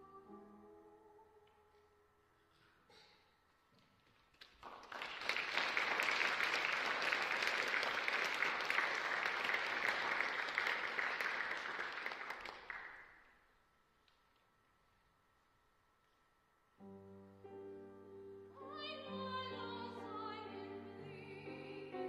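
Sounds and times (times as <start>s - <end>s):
audience applause: 4.4s - 13.2s.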